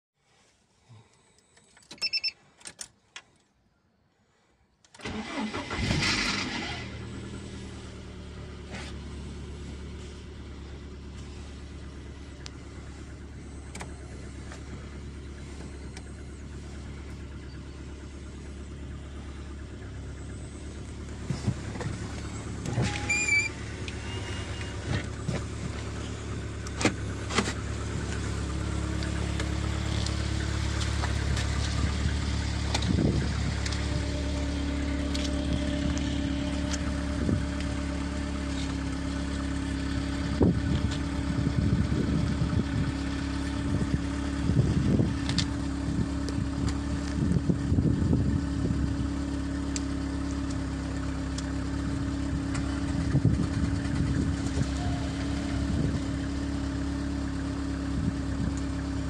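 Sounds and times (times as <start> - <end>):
short beep: 1.9 - 2.4, 22.8 - 24.9
car engine starting and idling: 4.4 - 59.0
ignition clicks: 4.8 - 6.8, 12.2 - 39.0, 43.4 - 48.2, 58.3 - 58.8
brief squeak: 22.6 - 25.0.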